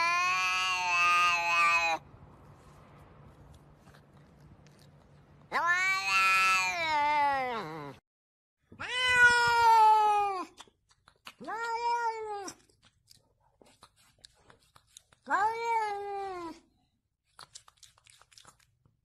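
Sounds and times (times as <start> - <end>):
cat meowing: 0.0 - 2.0, 5.5 - 8.0, 8.7 - 10.6, 11.3 - 12.6, 15.2 - 16.6.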